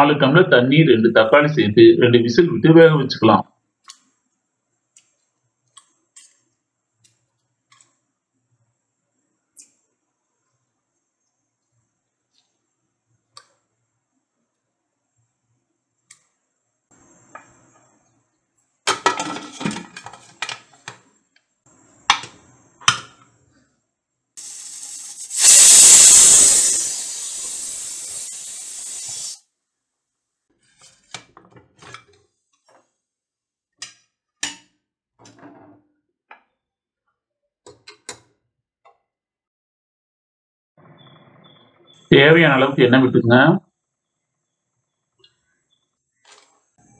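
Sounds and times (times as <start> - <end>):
pressure cooker steam hissing: 24.4 - 29.4.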